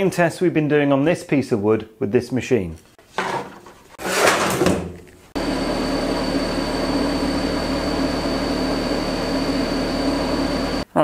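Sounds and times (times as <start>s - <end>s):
laser cutter drone and whine: 5.4s - 10.8s.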